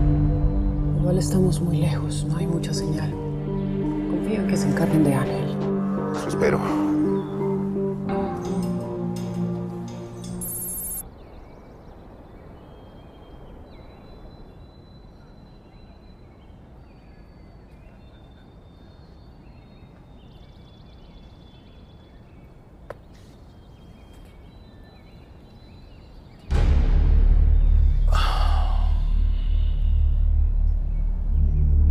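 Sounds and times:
low rumble: 0:00.0 - 0:06.0, 0:26.5 - 0:31.9
birds chirping: 0:00.0 - 0:26.7, 0:27.4 - 0:31.9
bird trill: 0:07.0 - 0:16.4.

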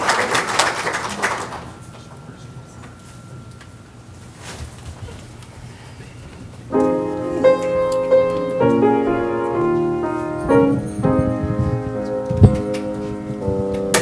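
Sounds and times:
low room noise: 0:00.0 - 0:14.0
piano playing chords: 0:06.7 - 0:14.0.

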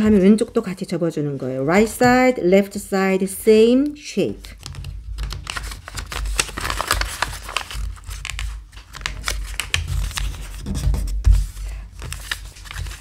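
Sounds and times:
paper rustling and crinkling: 0:04.6 - 0:13.0.

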